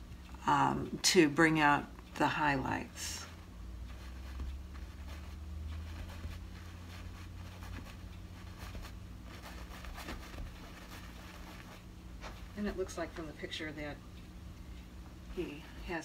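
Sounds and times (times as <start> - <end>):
low steady hum: 0.0 - 16.0
paintbrush scratching on canvas: 2.5 - 13.3.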